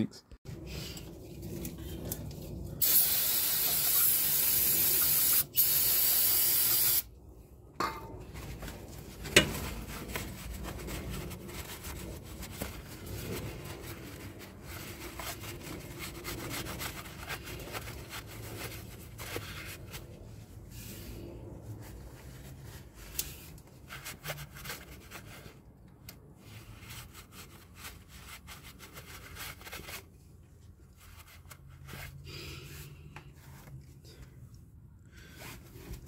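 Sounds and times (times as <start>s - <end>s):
aerosol spray hissing: 2.8s - 7.0s
paper towel rubbing metal: 9.2s - 20.2s.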